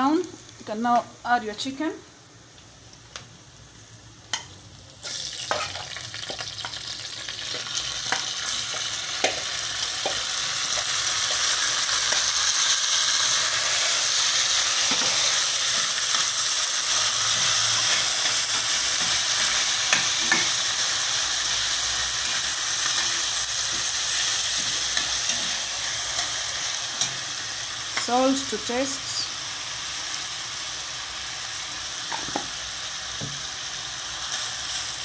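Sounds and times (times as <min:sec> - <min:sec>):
chicken sizzling in hot oil: 0:03.1 - 0:35.0.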